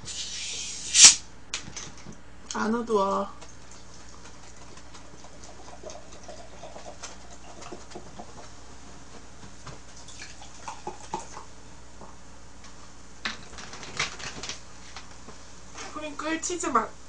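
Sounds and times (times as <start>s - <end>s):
carbonated drink pouring and fizzing: 5.2s - 8.3s.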